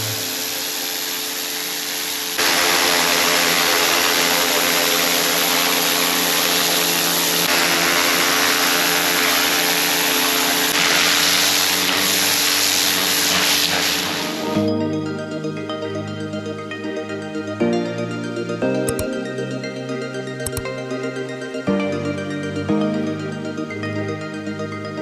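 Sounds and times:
motor hum: 0.0s - 14.6s, 18.7s - 19.3s, 20.4s - 21.1s
water jet hissing on paving: 0.0s - 14.6s.

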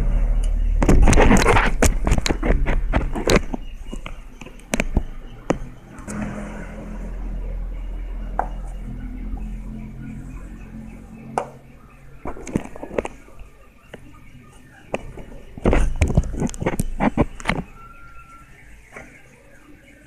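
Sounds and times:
steady low hum: 0.0s - 20.0s
plastic tube crackling: 0.8s - 5.1s.

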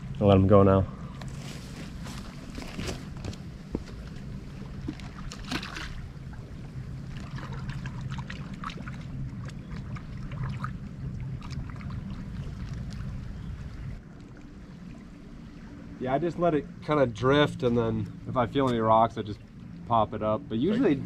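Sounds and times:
wind rumble on microphone: 0.0s - 15.0s
moving water: 0.0s - 21.0s
small water splashes: 4.5s - 16.0s.

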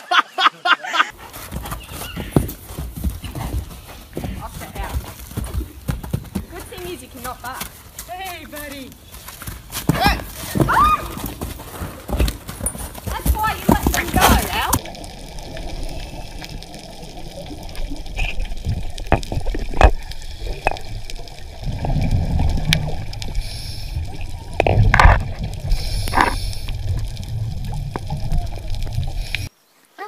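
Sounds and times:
water rushing bursts: 11.0s - 29.5s
low rumbling underwater noise: 14.8s - 29.5s.

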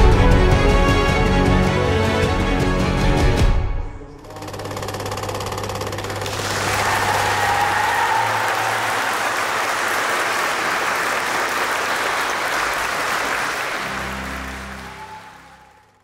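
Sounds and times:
music: 0.0s - 4.4s, 13.0s - 16.0s
congregation clapping: 6.0s - 16.0s.

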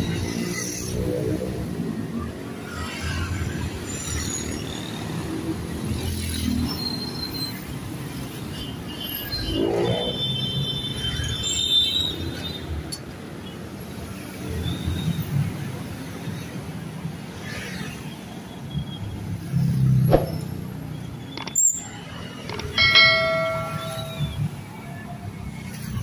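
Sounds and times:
vehicles passing: 19.2s - 26.0s.

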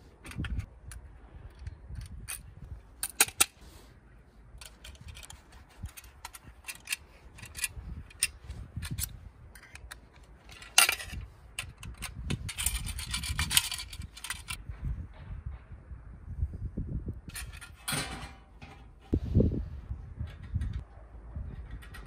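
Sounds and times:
screwdriver and bolts clicking on metal: 0.2s - 3.6s, 4.6s - 14.6s, 21.6s - 22.0s.

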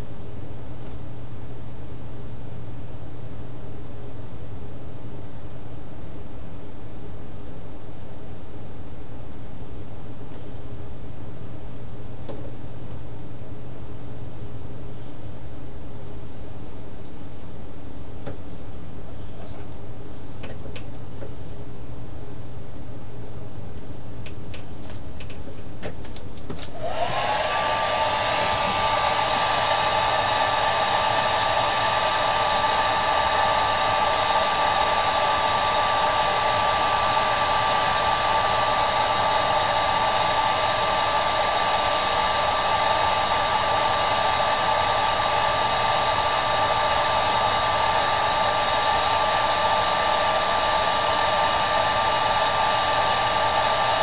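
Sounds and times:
hair dryer blowing with whine: 26.6s - 54.0s.

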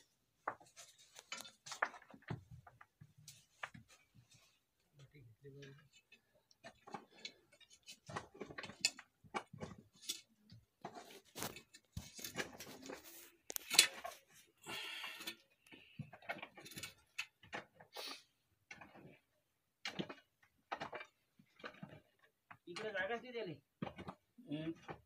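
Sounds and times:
digging soil and stones by hand: 5.6s - 25.0s.

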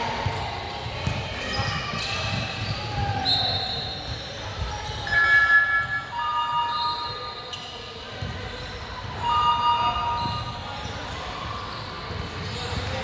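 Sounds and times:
sneakers squeaking: 0.1s - 13.0s
basketball bouncing: 0.2s - 1.3s.

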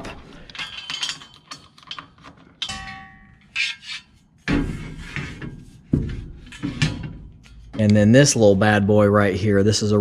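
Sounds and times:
ringing metal clank: 2.6s - 3.8s.

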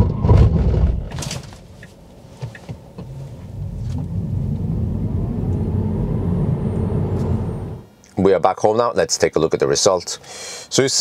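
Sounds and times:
tyre and road rumble: 2.4s - 7.9s
electric motor whine: 3.6s - 7.8s.

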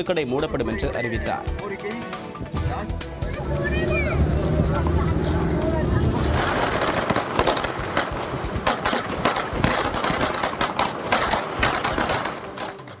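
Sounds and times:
firecrackers crackling: 4.7s - 13.0s.

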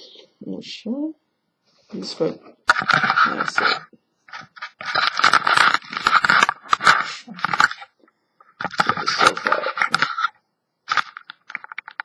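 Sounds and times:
rubbing against microphone: 1.7s - 7.9s.

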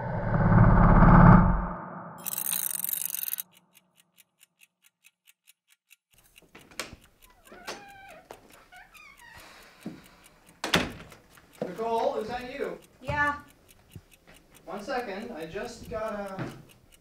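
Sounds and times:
clock ticking: 2.2s - 17.0s
door hinges creaking: 6.7s - 9.6s.

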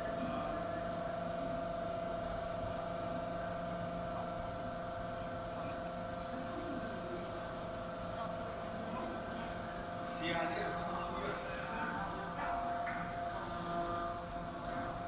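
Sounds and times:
hydraulic power unit humming: 0.0s - 15.0s.

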